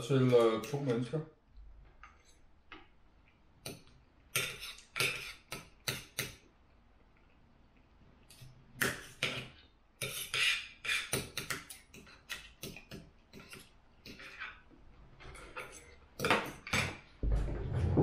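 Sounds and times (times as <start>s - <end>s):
cutlery scraping on plate: 4.3s - 6.4s, 8.9s - 17.0s.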